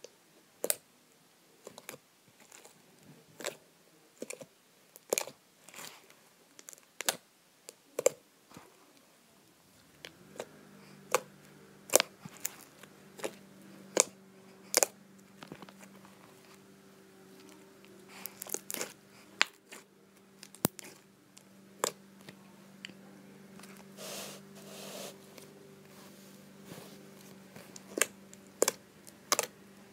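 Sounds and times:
slime popping and crackling: 18.2 - 19.8, 20.4 - 21.0.

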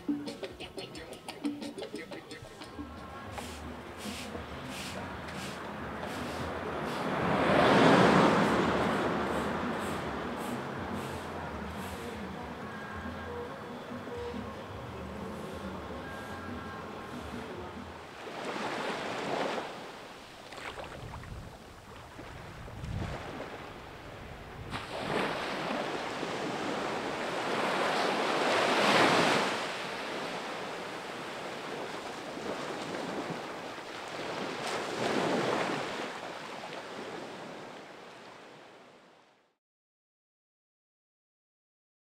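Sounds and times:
small waves washing onto beach: 3.2 - 12.3, 17.0 - 39.3.

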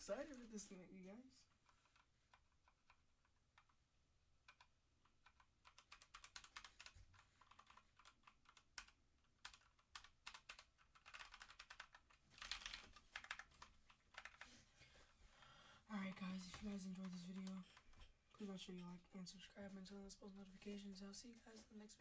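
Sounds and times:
mechanical keyboard typing: 4.4 - 14.5, 16.1 - 17.9.

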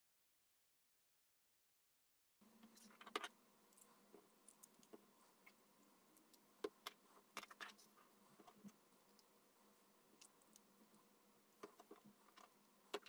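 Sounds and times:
faint steady hum: 2.4 - 13.0
plastic parts clicking and tapping: 6.6 - 7.8, 11.6 - 13.0.

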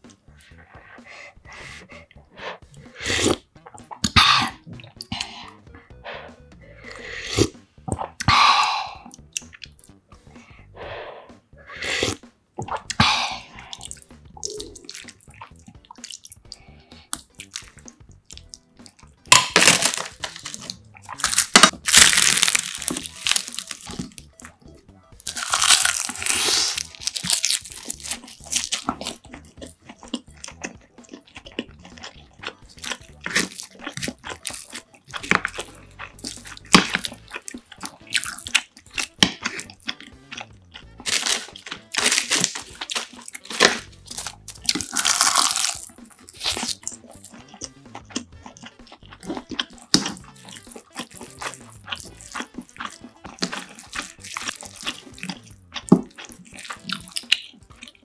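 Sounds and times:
chewing and slurping: 0.0 - 10.9, 11.6 - 58.0
hissy mouth noise: 0.4 - 3.4, 10.8 - 12.2, 12.9 - 14.8, 26.3 - 26.9.

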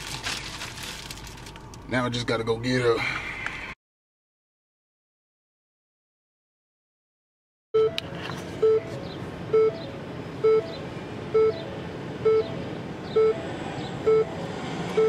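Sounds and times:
dashboard warning chime beeps: 7.8 - 14.4.

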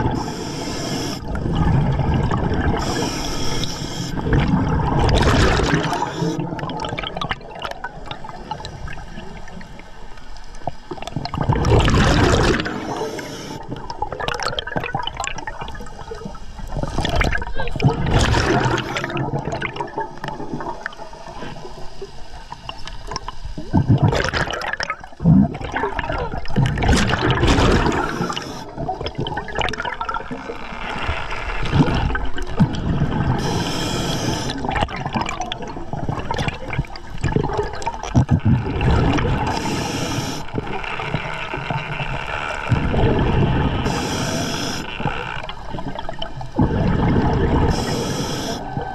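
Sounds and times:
steady water hiss: 0.0 - 7.0, 11.8 - 14.0, 15.7 - 25.2, 26.0 - 29.6, 30.3 - 35.2, 38.7 - 48.9
diver exhaling bubbles underwater: 1.0 - 9.0, 10.9 - 15.9, 16.7 - 21.0, 23.6 - 30.6, 31.6 - 40.8, 42.7 - 48.9.

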